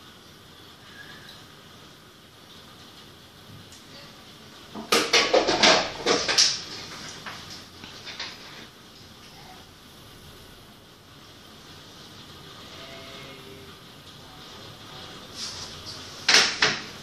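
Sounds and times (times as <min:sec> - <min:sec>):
heavy rain hiss: 0:00.0 - 0:17.0
loud rapid clattering knocks: 0:04.8 - 0:06.6.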